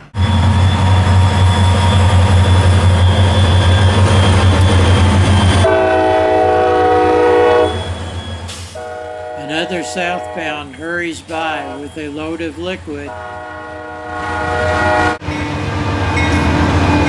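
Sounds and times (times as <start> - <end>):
diesel locomotive engine rumble: 0.0 - 17.0
rail noise: 0.0 - 17.0
locomotive air horn chord: 5.6 - 7.8, 8.7 - 10.7, 13.1 - 15.2.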